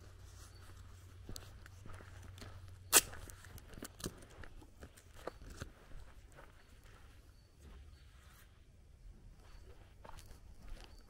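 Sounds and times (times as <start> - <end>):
footsteps on gravel: 0.1 - 7.2.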